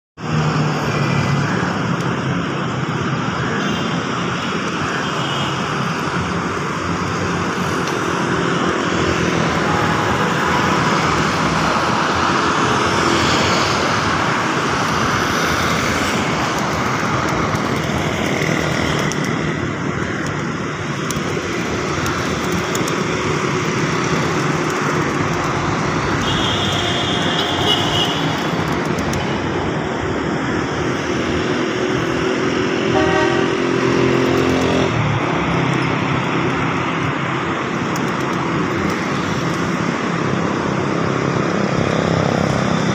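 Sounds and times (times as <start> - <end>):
road traffic noise: 0.2 - 42.9
vehicle horn toots: 32.9 - 33.6.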